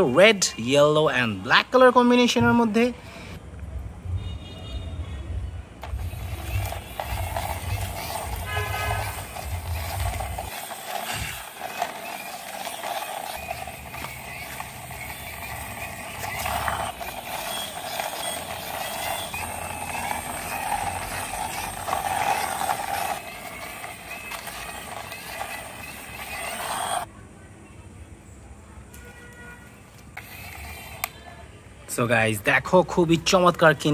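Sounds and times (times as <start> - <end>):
toy mechanism whirring: 5.8 - 27.1, 30.1 - 31.3
toy wheels rolling on concrete: 5.8 - 27.1, 29.6 - 33.9.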